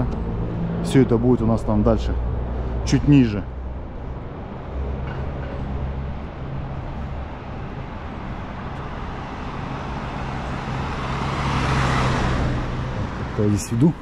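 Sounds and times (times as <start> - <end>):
low engine hum: 0.0 - 14.0
car passing close by: 9.0 - 14.0.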